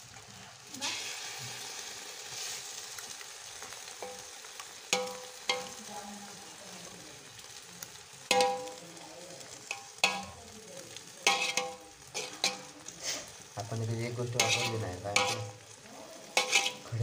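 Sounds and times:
food sizzling: 0:00.0 - 0:17.0
metal ladle scraping pot: 0:11.3 - 0:12.7, 0:14.3 - 0:15.6, 0:16.3 - 0:16.9.

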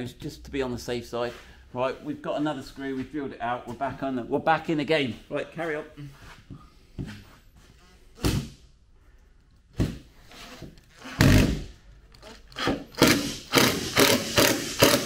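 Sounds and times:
impact driver bursts: 0:11.0 - 0:11.8, 0:12.6 - 0:15.0.

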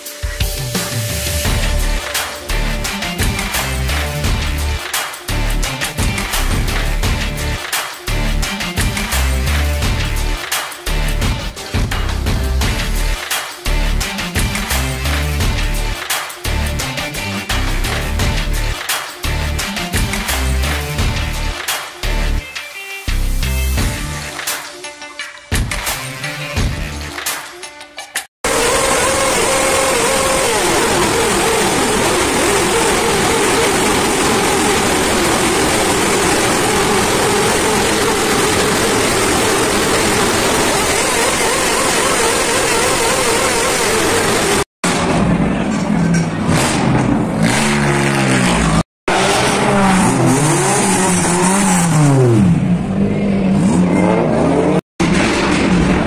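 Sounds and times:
car engine revving: 0:28.4 - 0:44.7, 0:45.5 - 0:55.6
motorcycles revving hard: 0:28.5 - 0:44.7, 0:46.4 - 0:54.8.

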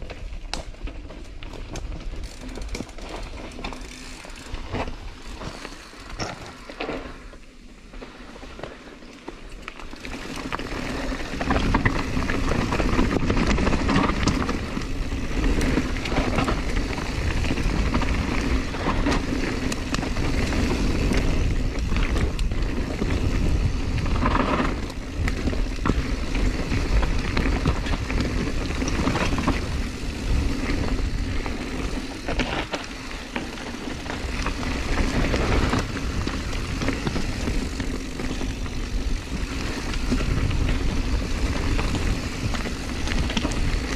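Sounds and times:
bike clacking and rattling: 0:00.0 - 0:07.4, 0:08.8 - 0:43.9
wind rush on microphone: 0:10.1 - 0:43.9.

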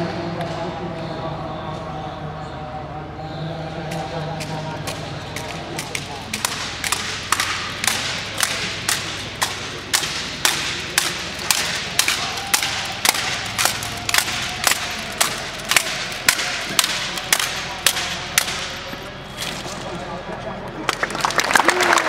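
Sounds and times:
hands slapping rifles: 0:04.4 - 0:19.0.

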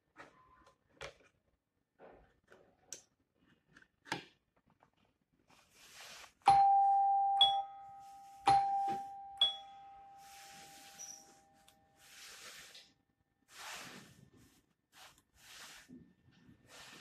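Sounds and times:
two-note doorbell chime: 0:06.5 - 0:12.0.

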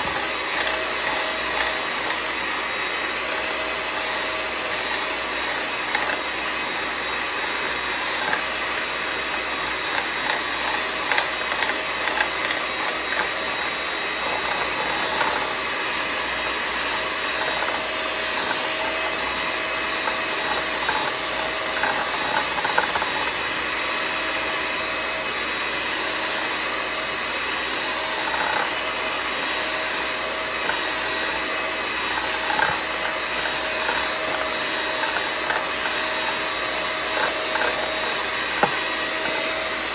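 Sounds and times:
electric hand mixer running: 0:00.0 - 0:39.9.

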